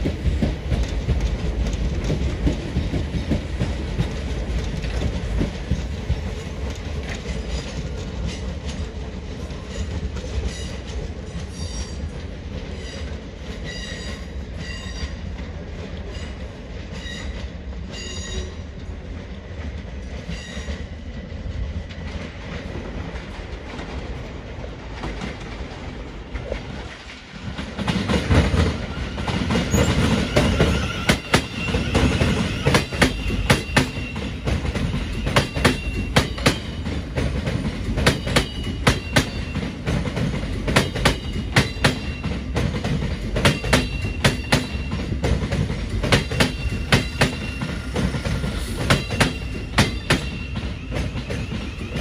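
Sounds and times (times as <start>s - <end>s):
train rumble: 0.0s - 52.0s
train wheels clacking over rail joints: 0.0s - 52.0s
wheel squeals: 28.7s - 36.8s, 46.3s - 52.0s.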